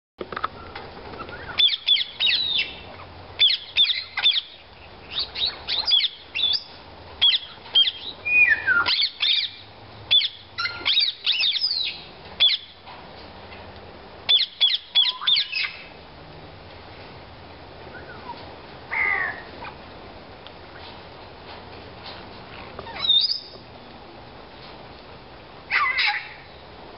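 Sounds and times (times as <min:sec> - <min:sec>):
parakeets calling: 0:00.6 - 0:12.8, 0:14.2 - 0:15.9, 0:18.0 - 0:19.8, 0:22.7 - 0:23.6, 0:25.7 - 0:26.6.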